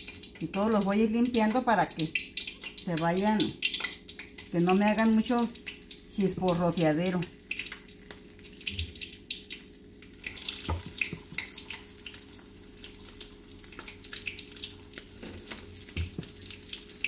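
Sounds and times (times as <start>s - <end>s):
food sizzling in hot oil: 0.0s - 17.0s.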